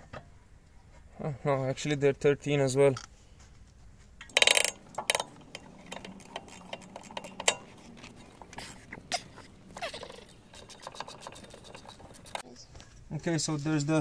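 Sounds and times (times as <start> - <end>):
ratchet wrench clicking: 4.2 - 12.4.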